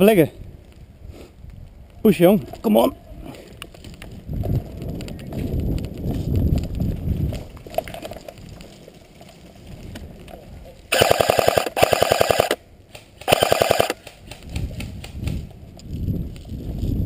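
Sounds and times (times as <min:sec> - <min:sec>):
airsoft rifle firing bursts: 0:10.9 - 0:12.6, 0:13.2 - 0:14.9.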